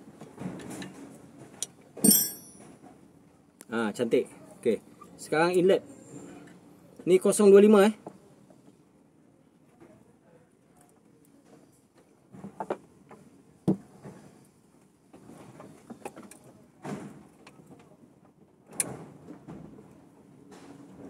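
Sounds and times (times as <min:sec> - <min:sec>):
hand tools clicking and scraping: 0:02.0 - 0:02.7.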